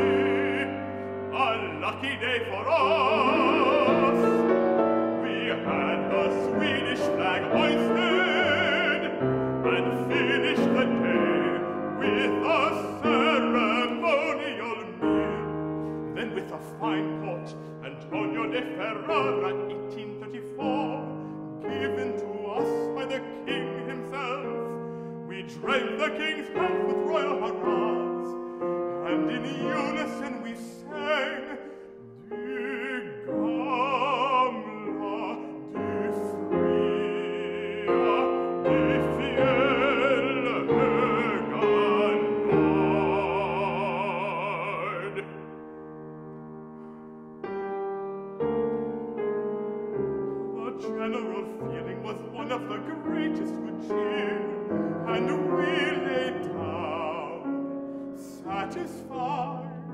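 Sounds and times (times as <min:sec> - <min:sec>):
man singing classical song: 0:00.0 - 0:46.5, 0:47.2 - 0:59.9
grand piano: 0:00.0 - 0:59.9.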